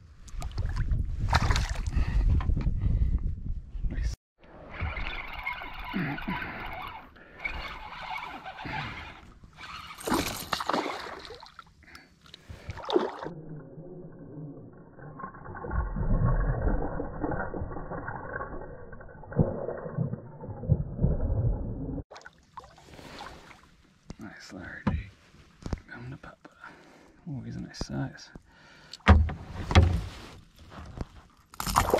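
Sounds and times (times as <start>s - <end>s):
fishing reel cranking: 4.8s - 10.4s.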